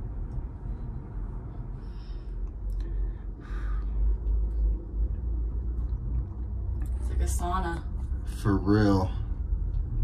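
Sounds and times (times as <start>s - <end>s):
low rumble in tram cabin: 0.0s - 10.0s
soft breathy sounds: 0.2s - 5.1s.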